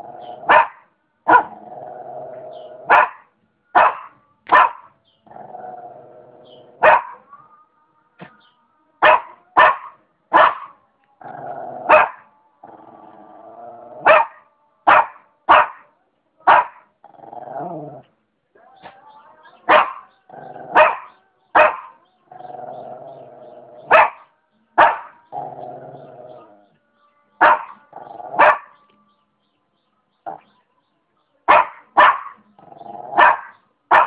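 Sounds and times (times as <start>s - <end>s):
dog barking: 0.4s - 1.6s, 2.8s - 4.9s, 6.8s - 7.3s, 9.0s - 10.8s, 11.9s - 12.2s, 14.0s - 16.9s, 19.7s - 22.0s, 23.8s - 25.2s, 27.4s - 28.8s, 31.5s - 32.4s, 33.1s - 34.0s
dog growling: 1.4s - 3.0s, 5.2s - 6.8s, 11.2s - 14.1s, 17.0s - 18.1s, 20.2s - 20.9s, 22.3s - 24.0s, 25.2s - 26.7s, 27.8s - 28.4s, 32.6s - 33.5s.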